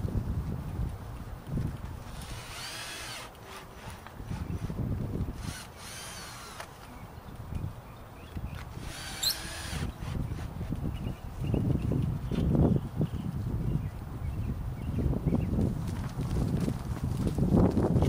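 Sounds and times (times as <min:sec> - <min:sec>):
cordless drill motor whine: 0:02.1 - 0:06.8, 0:08.8 - 0:10.4.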